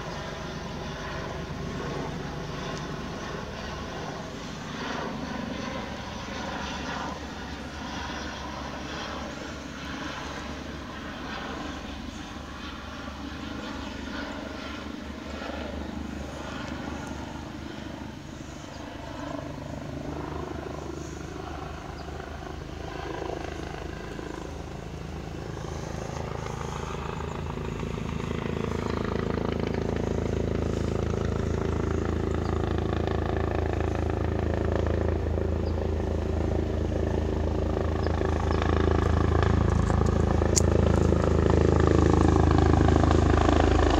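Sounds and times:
helicopter approaching and landing: 0:00.0 - 0:43.9.

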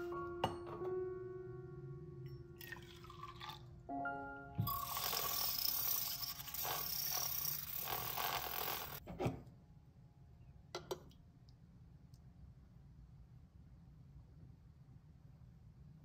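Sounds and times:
electric milk frother whirring: 0:04.6 - 0:09.0.

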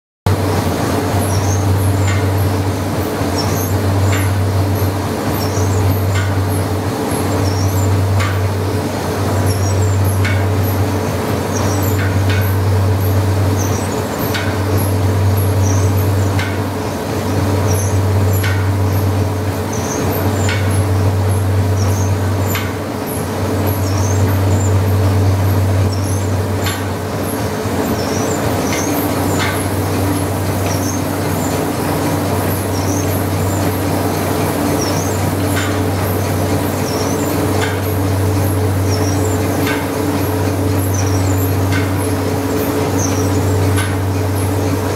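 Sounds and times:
engine sharp knocks: 0:00.3 - 0:44.9
steam engine low drone: 0:00.3 - 0:44.9.

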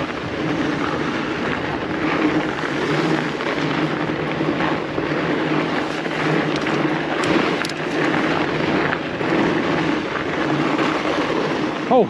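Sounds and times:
bike tyres rolling on snow: 0:00.0 - 0:12.0
wind noise on microphone: 0:00.0 - 0:12.0.

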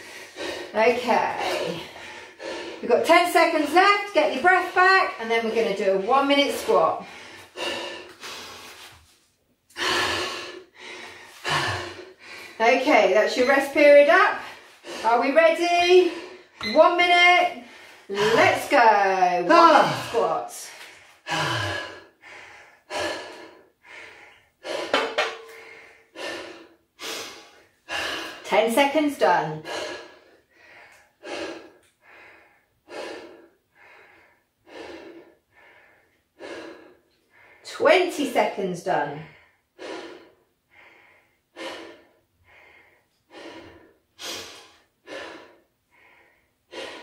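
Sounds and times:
man breathing hard: 0:00.0 - 0:00.8, 0:01.4 - 0:02.8, 0:07.0 - 0:12.6, 0:20.8 - 0:28.4, 0:29.6 - 0:37.6, 0:39.3 - 0:47.0.

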